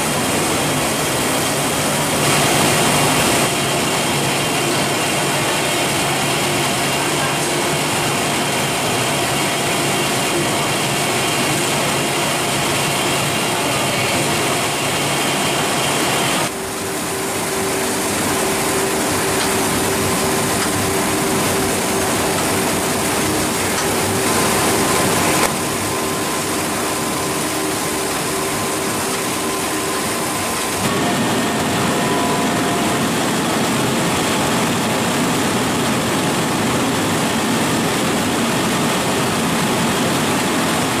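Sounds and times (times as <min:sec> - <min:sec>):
machinery running: 0:00.0 - 0:41.0.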